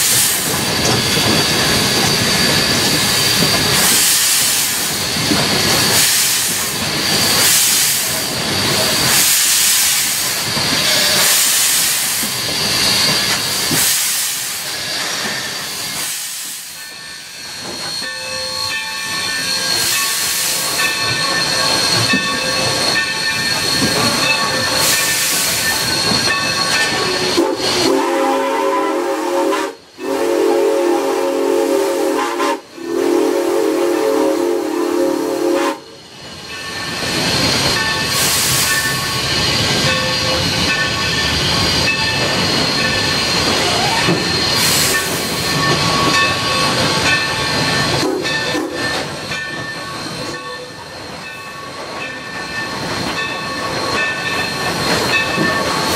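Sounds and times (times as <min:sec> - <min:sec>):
steam hiss: 0:00.0 - 0:55.9
steam locomotive exhaust chuffing: 0:00.0 - 0:55.9
steam whistle blasts: 0:27.0 - 0:36.0.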